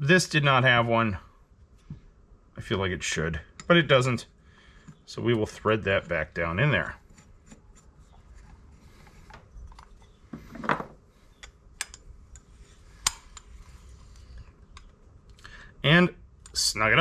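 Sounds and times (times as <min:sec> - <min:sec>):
sharp click: 0:13.0 - 0:13.5.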